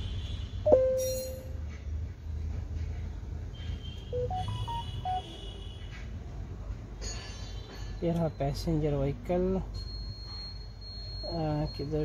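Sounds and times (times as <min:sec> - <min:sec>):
electronic beep: 0:00.7 - 0:01.3, 0:04.2 - 0:05.2, 0:09.8 - 0:12.0
short electronic notes stepping in pitch: 0:04.2 - 0:05.2.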